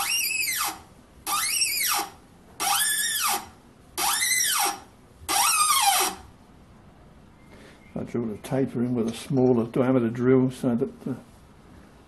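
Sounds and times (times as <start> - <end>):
tap squealing while cutting thread: 0.0 - 6.2.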